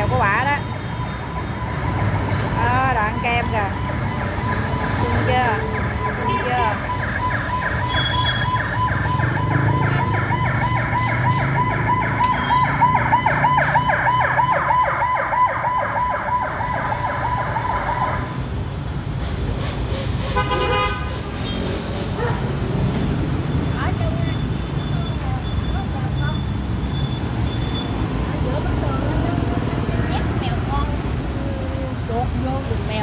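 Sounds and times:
low traffic rumble: 0.0 - 33.0
electronic alarm chirping: 1.0 - 10.2.

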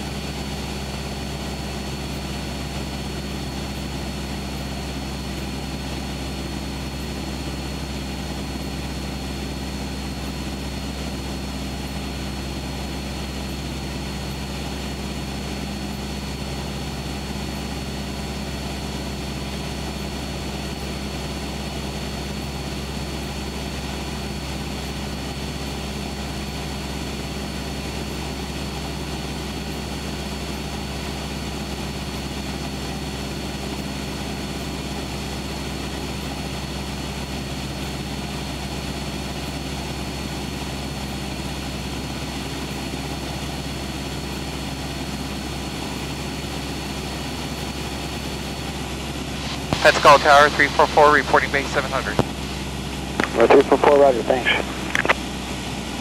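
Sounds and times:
propeller plane engine droning: 0.0 - 56.0
faint high whine: 49.5 - 52.6, 53.2 - 55.2.

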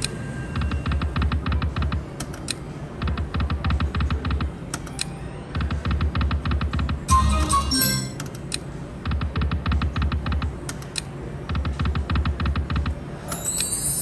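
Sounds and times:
slot machine reel ticking: 7.1 - 8.2, 13.4 - 14.0.

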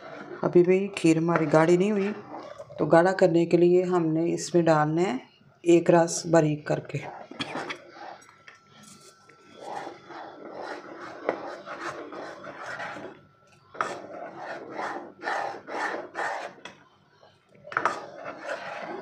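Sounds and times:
spatula scraping a pot: 0.0 - 3.2, 6.9 - 16.8, 17.6 - 19.0.

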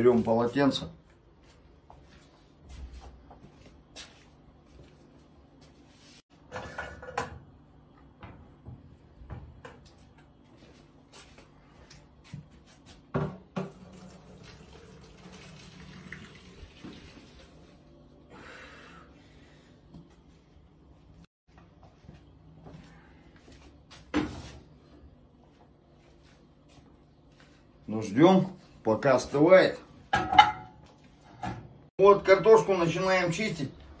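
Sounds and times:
water draining into sink: 13.6 - 17.6
metal pot knocking and clattering: 30.2 - 30.8.

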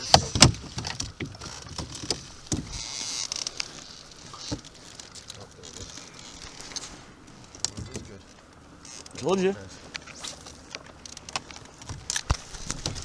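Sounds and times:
knocks and rustles in a canoe: 0.0 - 13.0.

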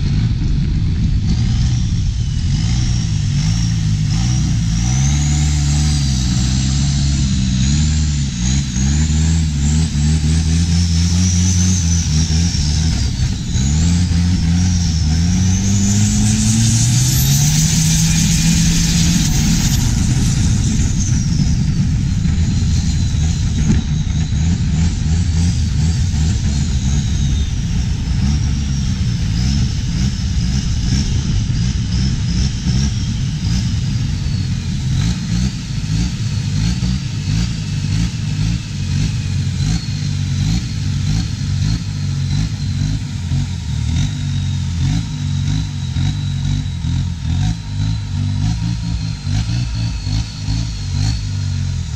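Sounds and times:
boat diesel engine running: 0.0 - 51.9
high whistle: 11.4 - 32.0.

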